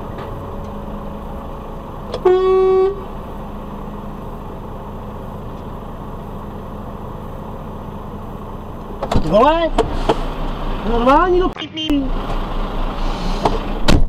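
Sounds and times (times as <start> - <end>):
truck engine idling: 0.0 - 13.9
loud truck horn blast: 2.1 - 3.1.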